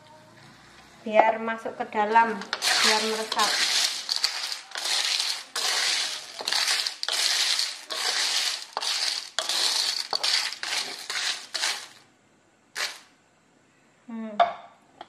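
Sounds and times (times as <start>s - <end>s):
shells scraping and rattling in wok: 2.2s - 12.0s, 12.8s - 13.1s.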